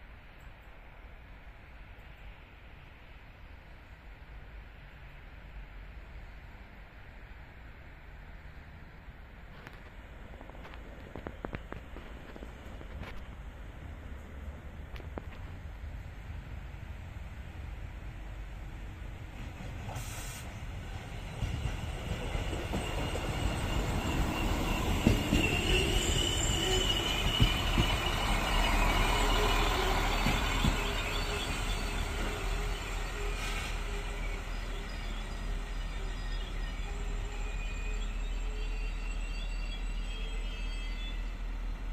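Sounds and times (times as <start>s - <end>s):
train engine and running noise: 0.0s - 41.9s
wheel and brake squeal: 22.2s - 41.5s.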